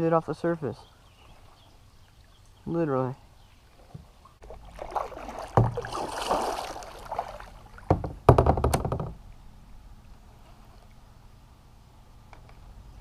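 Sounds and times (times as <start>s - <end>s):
water splashing beside kayak: 3.5s - 8.2s
knocks against kayak hull: 5.5s - 6.0s, 7.9s - 9.2s.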